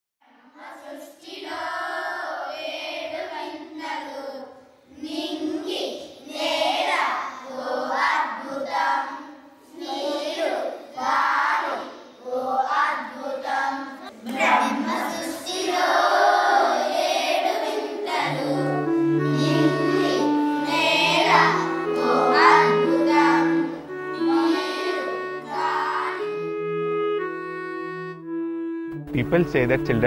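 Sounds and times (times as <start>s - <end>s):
children singing: 0.4s - 26.6s
held instrumental notes: 17.7s - 30.0s.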